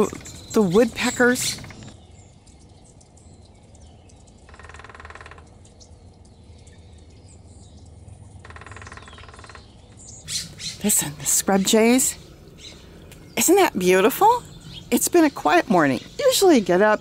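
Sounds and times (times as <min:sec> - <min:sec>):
small birds chirping: 0:00.0 - 0:17.0
woodpecker calling: 0:00.0 - 0:17.0.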